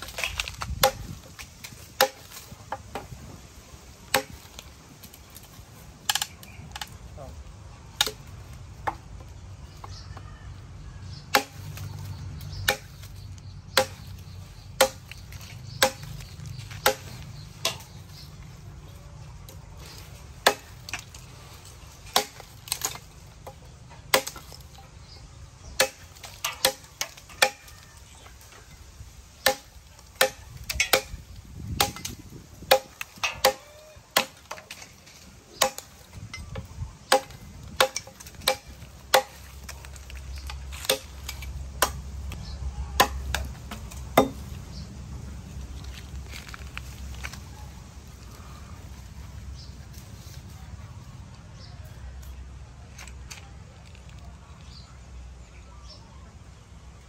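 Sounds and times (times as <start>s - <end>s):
cleaver chopping on wooden log: 11.3s - 11.9s, 13.7s - 14.1s, 14.8s - 18.0s, 29.4s - 34.7s, 37.0s - 39.8s, 40.4s - 44.5s.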